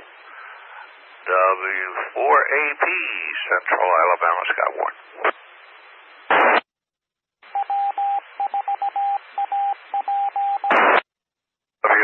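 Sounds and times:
hissy radio carrier: 0:00.0 - 0:06.6
loud burst of static: 0:00.0 - 0:06.7, 0:10.7 - 0:11.1
morse code beeps: 0:07.5 - 0:10.7.

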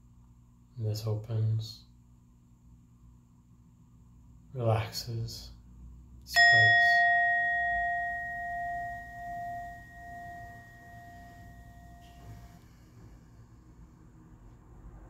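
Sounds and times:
struck bell ringing: 0:06.4 - 0:12.4.

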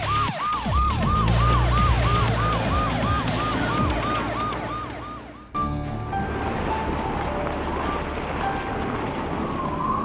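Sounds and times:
police siren: 0:00.0 - 0:05.6
low vehicle rumble: 0:00.7 - 0:10.0.

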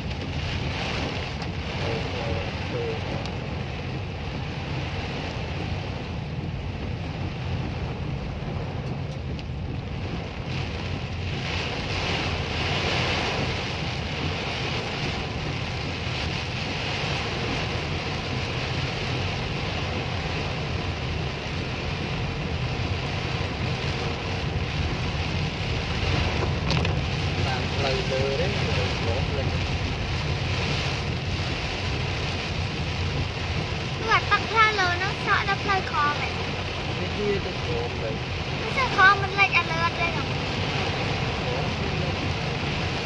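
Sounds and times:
car driving on wet road: 0:00.0 - 0:43.0
heavy rain on car roof: 0:00.0 - 0:43.0.

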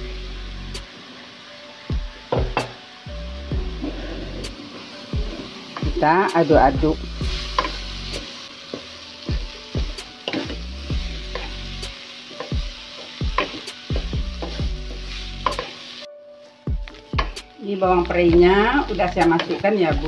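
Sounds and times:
food sizzling in oil: 0:00.0 - 0:20.0
spatula knocking and scraping a pan: 0:11.2 - 0:11.6, 0:12.3 - 0:15.8, 0:16.8 - 0:17.4.

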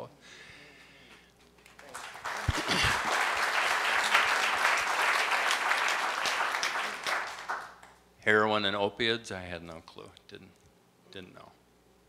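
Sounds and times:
audience applause: 0:01.6 - 0:07.9.

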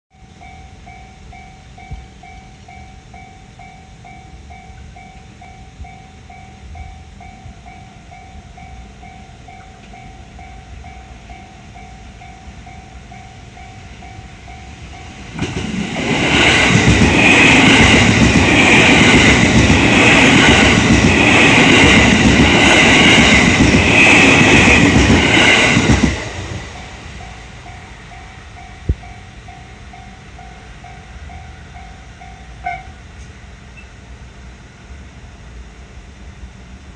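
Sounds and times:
railroad crossing bell dinging: 0:00.1 - 0:35.9
train wheels rattling over rails: 0:09.5 - 0:33.4.

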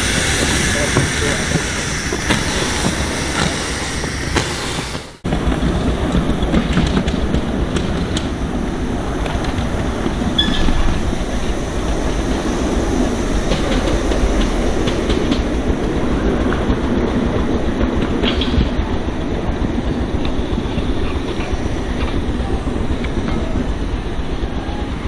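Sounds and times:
miniature steam train rumbling: 0:00.0 - 0:25.0
wheels clicking on rails: 0:00.0 - 0:25.0.

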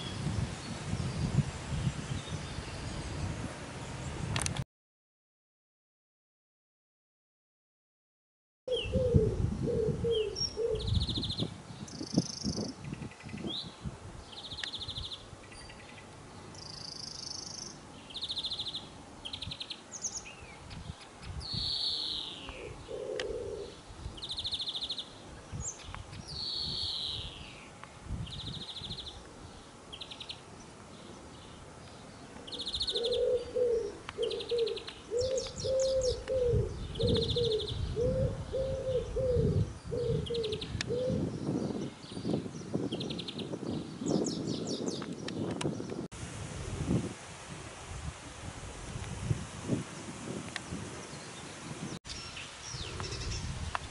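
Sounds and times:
dove cooing: 0:08.7 - 0:11.0, 0:22.5 - 0:23.8, 0:32.4 - 0:41.3
finch singing trills: 0:31.4 - 0:45.0.

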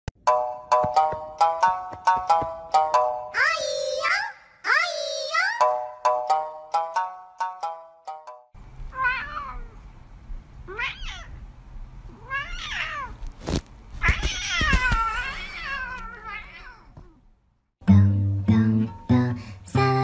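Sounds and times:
plucked background music: 0:00.2 - 0:03.4, 0:17.8 - 0:20.0
cat meowing: 0:08.9 - 0:09.8, 0:10.7 - 0:11.4, 0:12.1 - 0:13.2, 0:14.0 - 0:17.2.

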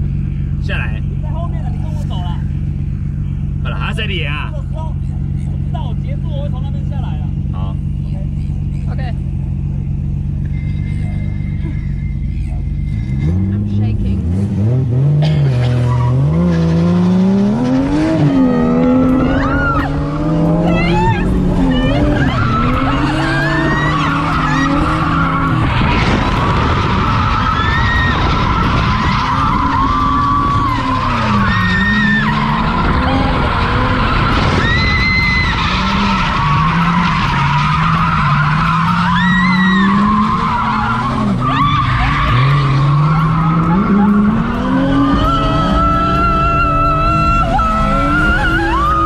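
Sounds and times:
car engine revving: 0:00.0 - 0:49.0
tyres squealing: 0:10.0 - 0:14.0, 0:17.5 - 0:49.0.

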